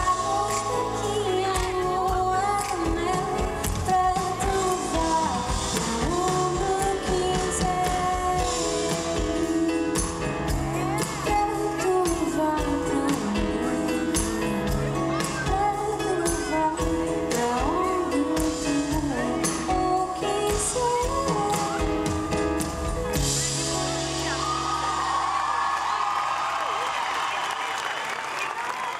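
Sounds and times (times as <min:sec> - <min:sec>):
woman singing: 0:00.0 - 0:22.4
bass: 0:00.0 - 0:26.8.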